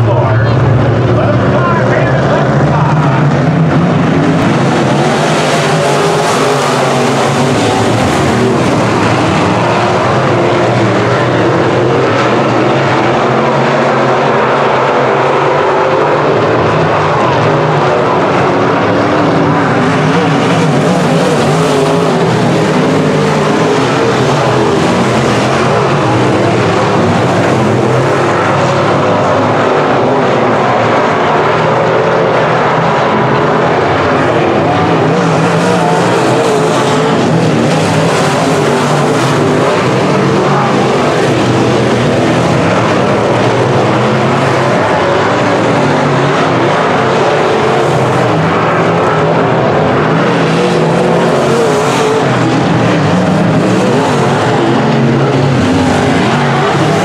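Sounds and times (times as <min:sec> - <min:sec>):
race car engines roaring: 0:00.0 - 0:57.0.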